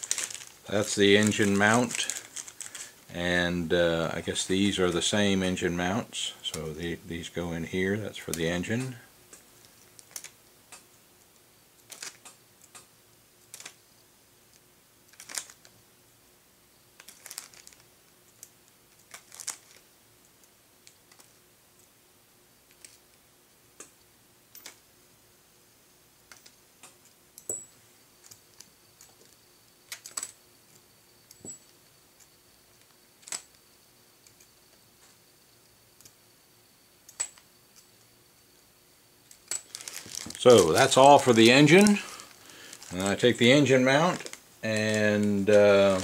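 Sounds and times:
plastic bag crinkling: 0.0s - 3.1s, 11.9s - 12.3s, 15.1s - 15.7s, 17.0s - 17.9s, 19.1s - 19.9s, 39.5s - 46.0s
small metal parts clicking: 8.8s - 11.0s, 15.1s - 15.7s, 17.0s - 21.9s, 26.3s - 33.6s, 37.1s - 38.1s, 39.3s - 43.1s.

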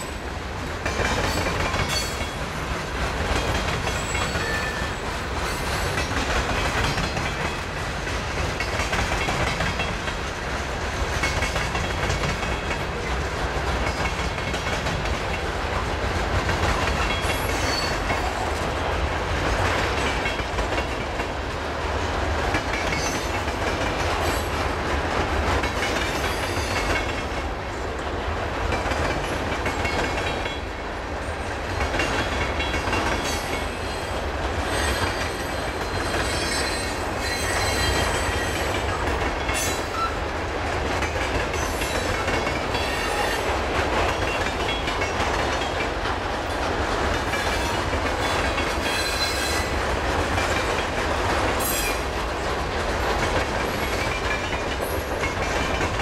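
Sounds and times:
train wheels rumbling on rail: 0.0s - 56.0s
high wheel squeal: 33.8s - 38.7s.

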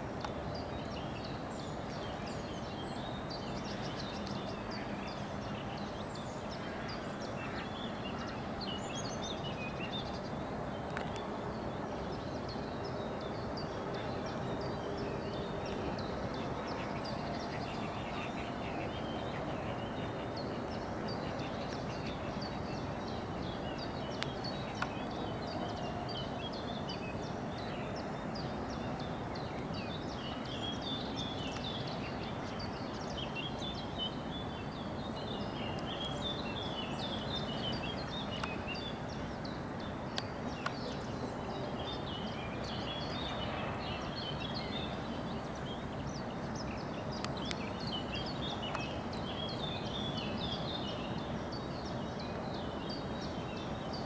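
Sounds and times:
small birds chirping: 0.2s - 54.0s
faint clicks: 10.8s - 11.3s, 24.1s - 25.2s, 38.3s - 38.6s, 47.1s - 47.8s.

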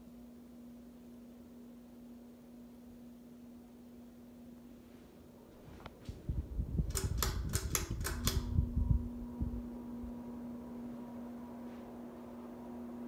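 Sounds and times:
ceiling fan motor hum: 0.0s - 13.0s
sharp clicks: 6.9s - 8.5s.

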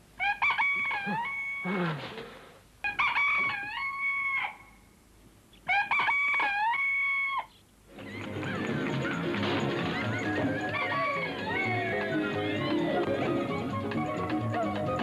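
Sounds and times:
rooster crowing: 0.2s - 1.7s, 2.8s - 4.6s, 5.7s - 7.5s, 10.1s - 12.9s.

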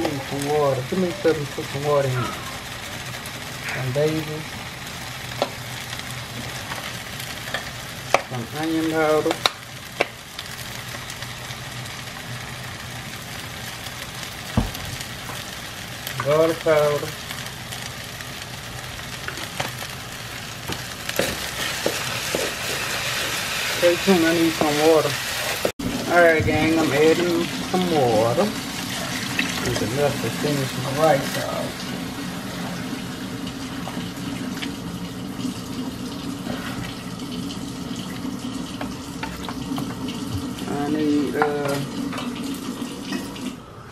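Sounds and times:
rice sizzling in a frying pan: 0.0s - 43.5s
wooden spoon scraping a pan: 21.2s - 25.7s.

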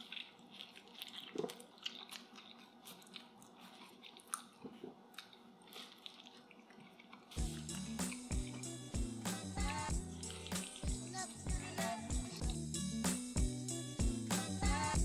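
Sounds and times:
crust crackling in mouth: 0.0s - 12.6s
man chewing pizza: 0.0s - 13.0s
background music with beat: 7.4s - 15.0s.

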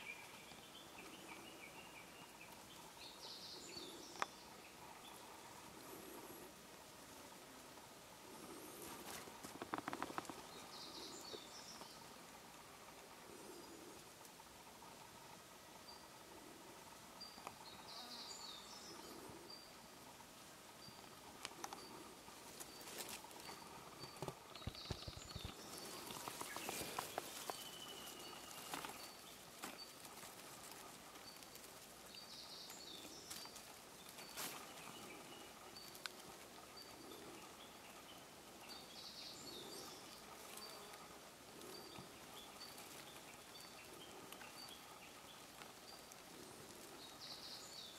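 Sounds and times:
clicks and rustles: 8.9s - 10.6s, 22.6s - 31.9s.

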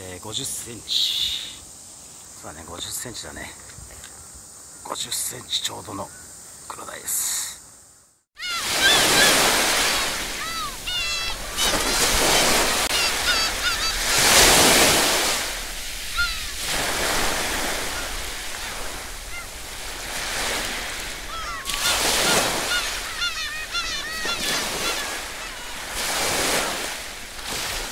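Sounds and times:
high bird calls: 8.4s - 27.7s
waves breaking on rocky shore: 8.4s - 27.9s.

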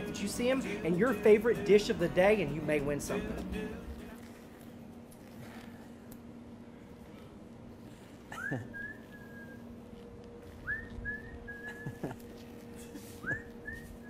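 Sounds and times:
steady low hum: 0.0s - 14.0s
person whistling: 8.4s - 9.6s, 10.6s - 12.0s, 13.2s - 14.0s.

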